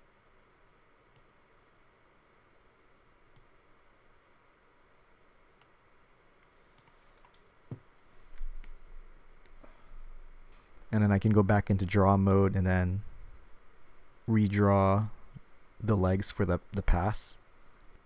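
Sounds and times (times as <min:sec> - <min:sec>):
computer mouse clicks: 0:01.1 - 0:01.3, 0:03.3 - 0:03.6, 0:06.4 - 0:07.5.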